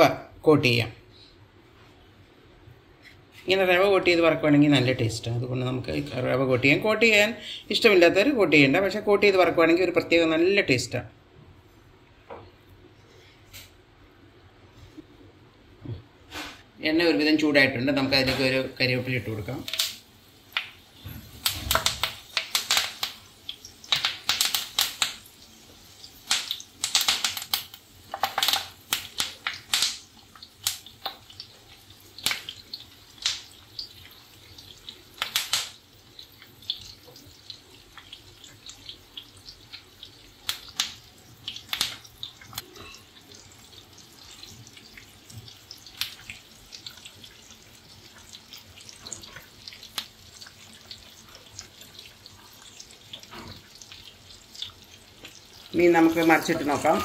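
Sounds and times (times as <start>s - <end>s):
leaves crackling in hot oil: 17.5s - 57.0s.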